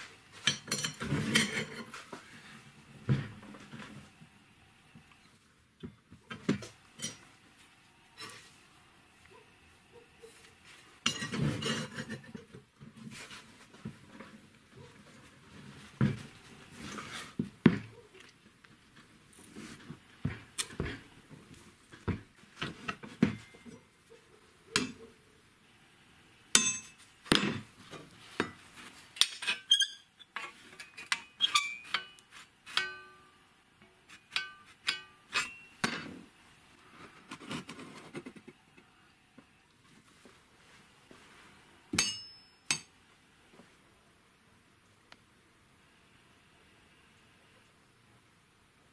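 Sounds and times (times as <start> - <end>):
steel bar knocking and clinking: 26.6 - 27.6, 30.8 - 33.3, 34.3 - 36.1, 42.0 - 42.9
short metallic rings: 34.3 - 35.8, 42.0 - 42.9.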